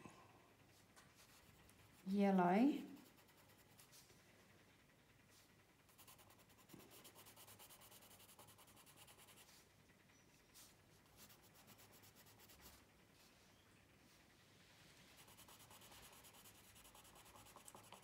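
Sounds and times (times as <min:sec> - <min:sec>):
coloured pencil scratching on paper: 0:02.9 - 0:04.0, 0:05.9 - 0:09.7, 0:10.5 - 0:12.8, 0:15.1 - 0:18.0.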